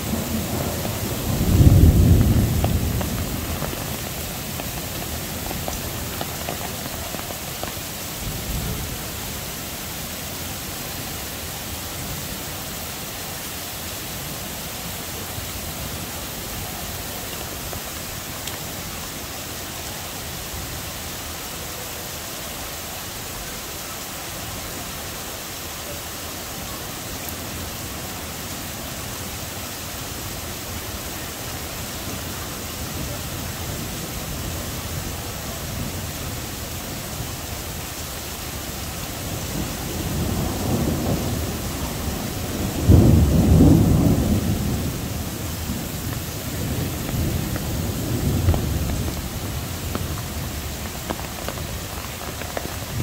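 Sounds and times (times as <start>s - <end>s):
thunder rumbling: 0.0s - 12.3s, 38.6s - 53.0s
heavy rain pouring: 0.0s - 53.0s.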